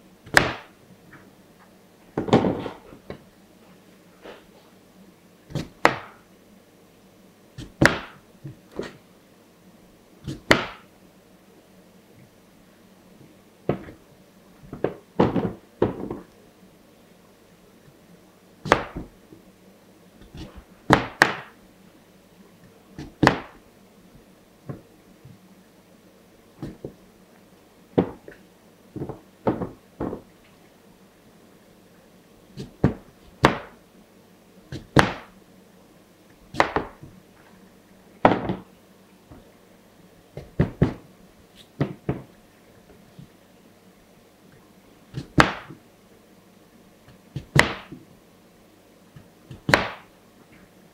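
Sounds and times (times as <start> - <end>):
knife chopping on plastic board: 0.3 - 0.7, 5.5 - 6.2, 7.6 - 8.2, 10.2 - 10.8, 18.7 - 19.1, 20.2 - 21.6, 23.0 - 23.6, 32.6 - 33.8, 34.7 - 35.3, 36.5 - 37.1, 45.1 - 45.8, 47.4 - 48.0, 49.5 - 50.1.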